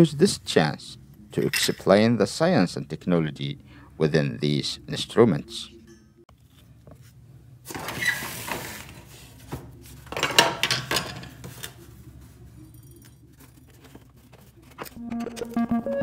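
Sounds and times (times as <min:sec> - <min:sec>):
background music: 0:04.0 - 0:06.2, 0:14.9 - 0:16.0.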